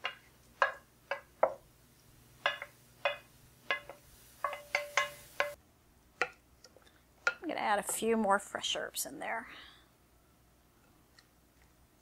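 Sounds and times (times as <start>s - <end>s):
wooden spoon knocking on a skillet: 0.0s - 1.7s, 2.4s - 5.6s.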